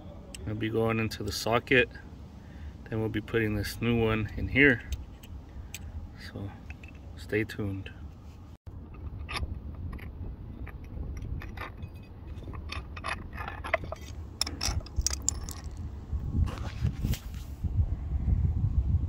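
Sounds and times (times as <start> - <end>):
small metallic clicks and scrapes: 4.2 - 5.9, 6.6 - 7.1, 8.8 - 15.8.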